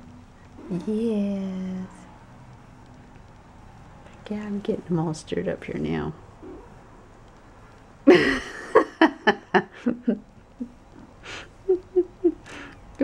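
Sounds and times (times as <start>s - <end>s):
person laughing: 8.1s - 12.7s.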